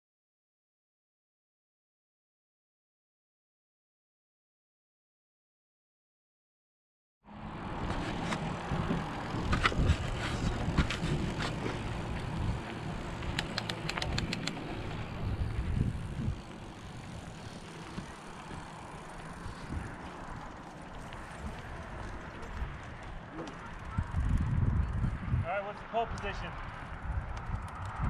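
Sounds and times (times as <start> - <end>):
bike tyres rumbling on dirt: 7.6 - 13.4, 14.6 - 25.4
wind noise: 7.6 - 20.4, 23.6 - 28.0
bike clicking and rattling: 7.8 - 25.3, 26.0 - 28.0.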